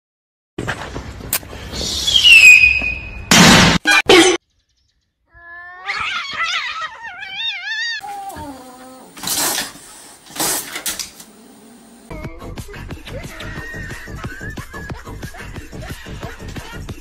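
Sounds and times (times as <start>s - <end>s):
lower cat cry: 5.3s - 9.2s
cat yowling: 5.4s - 9.2s.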